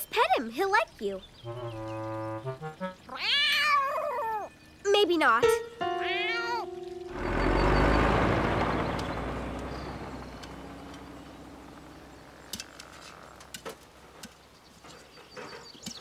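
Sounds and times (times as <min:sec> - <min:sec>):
cartoon heavy vehicle rumble: 0:01.5 - 0:02.8, 0:05.9 - 0:13.5.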